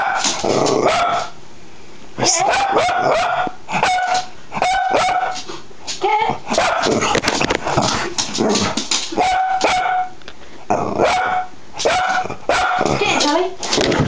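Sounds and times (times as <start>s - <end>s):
dog barking: 0.0s - 0.3s, 0.9s - 1.3s, 2.4s - 5.4s, 6.5s - 7.0s, 9.2s - 10.2s, 11.0s - 13.1s.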